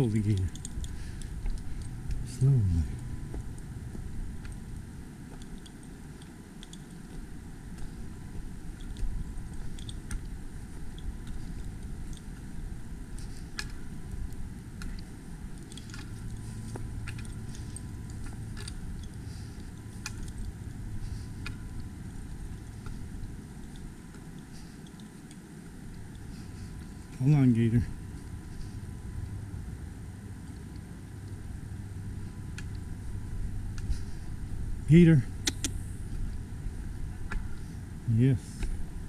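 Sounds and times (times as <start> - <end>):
low steady hum: 0.0 - 39.0
rustling undergrowth: 0.0 - 39.0.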